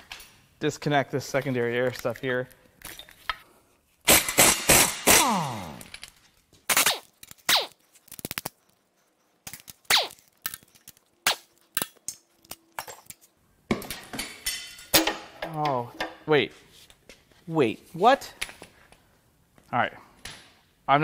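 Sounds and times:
impact wrench hammering: 0:04.1 - 0:05.5.

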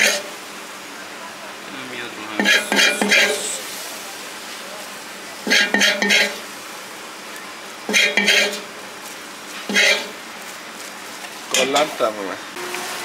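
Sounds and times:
metal utensils scraping a pan: 0:02.4 - 0:03.6, 0:05.5 - 0:06.4, 0:07.9 - 0:08.7, 0:09.6 - 0:10.2.

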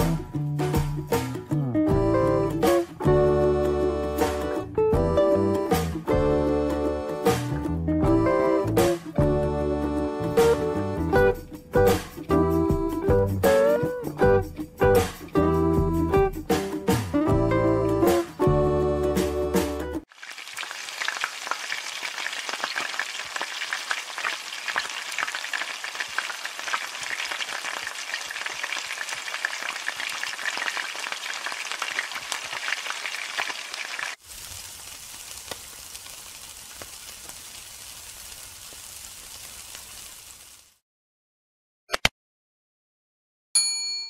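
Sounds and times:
meat sizzling on a grill: 0:20.1 - 0:40.8
oil sizzling in a wok: 0:20.1 - 0:40.8.

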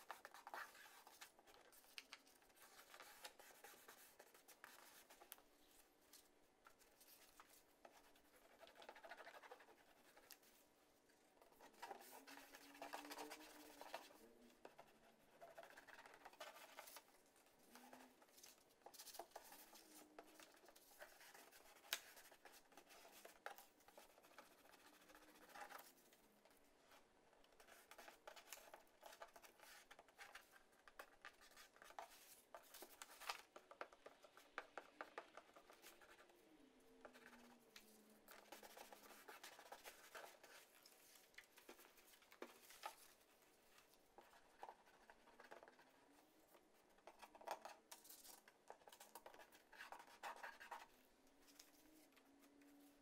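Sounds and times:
paper rustling and scratching: 0:00.0 - 0:10.6, 0:11.4 - 0:53.0
glue stick rubbing on paper: 0:11.5 - 0:26.2.

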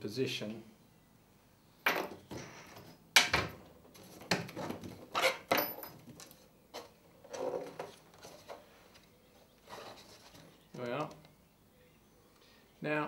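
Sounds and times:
wooden knocks and clunks: 0:01.8 - 0:08.6.

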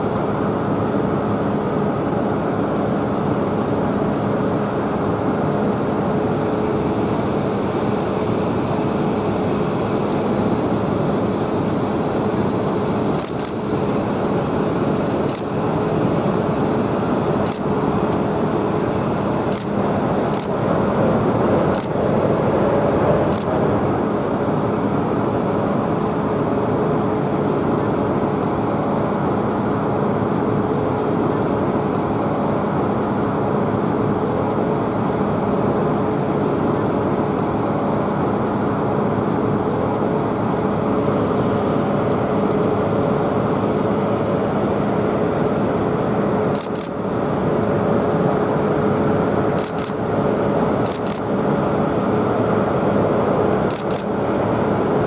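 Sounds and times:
jet engine noise: 0:00.0 - 0:55.0
sharp clicks: 0:13.1 - 0:13.6, 0:15.3 - 0:15.5, 0:17.4 - 0:18.2, 0:19.5 - 0:20.6, 0:21.6 - 0:22.0, 0:23.3 - 0:23.5, 0:46.6 - 0:47.0, 0:49.5 - 0:50.0, 0:50.8 - 0:51.2, 0:53.7 - 0:54.1.

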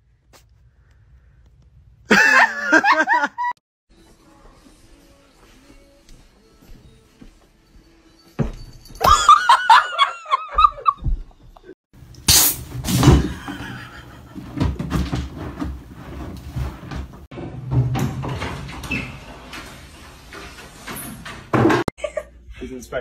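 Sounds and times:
rustling and bumping: 0:12.7 - 0:21.9.

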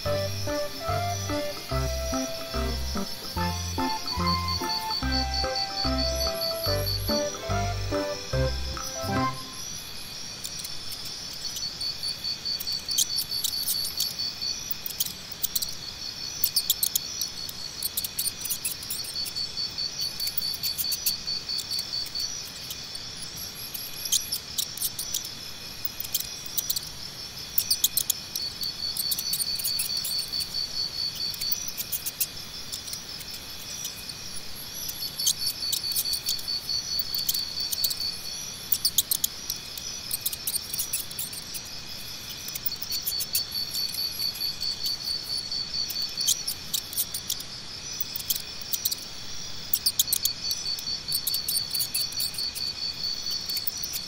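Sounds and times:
sharp high chirps: 0:00.0 - 0:09.7
crickets trilling: 0:00.0 - 0:54.0.

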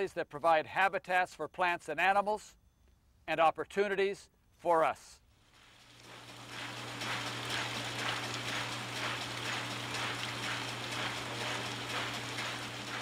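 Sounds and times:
low machine hum: 0:05.8 - 0:13.0.

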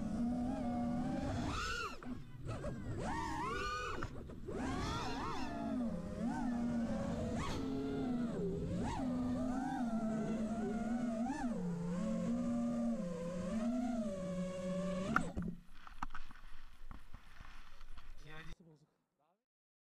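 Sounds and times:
drone motors whining: 0:00.0 - 0:15.6.

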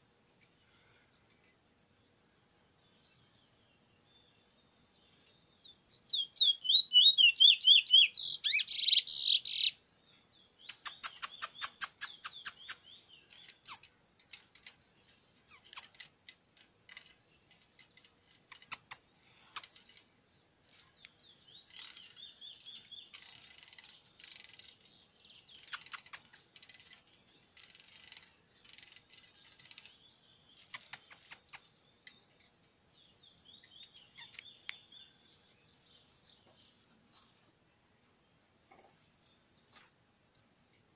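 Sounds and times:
bird rapid clicks: 0:10.6 - 0:20.0, 0:25.5 - 0:32.5, 0:33.8 - 0:34.8.

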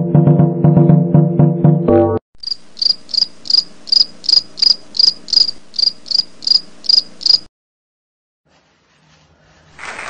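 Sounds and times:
cricket chirping: 0:02.4 - 0:07.5.

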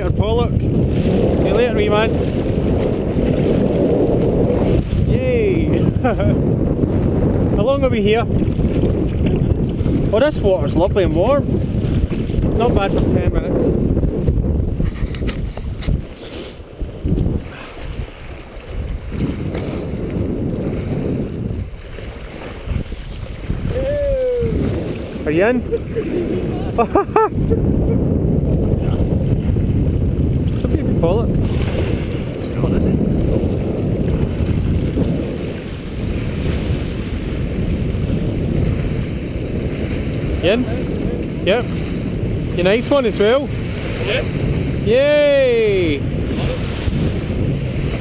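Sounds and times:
sea water washing against rocks: 0:00.0 - 0:27.8, 0:29.0 - 0:48.0
wind buffeting microphone: 0:00.0 - 0:48.0
brief hiss: 0:16.2 - 0:16.6.

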